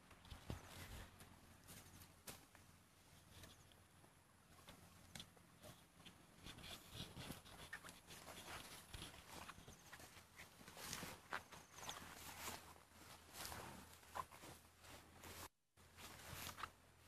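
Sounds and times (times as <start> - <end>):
elephants walking on grass: 0.0 - 17.0
scraping at loose dirt: 4.5 - 16.8.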